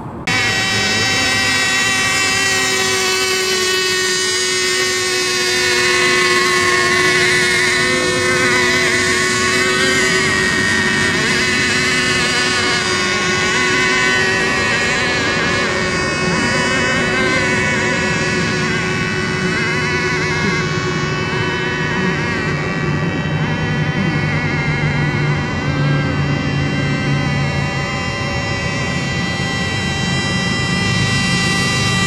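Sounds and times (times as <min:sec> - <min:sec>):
model boat engines whining: 0:00.0 - 0:32.0.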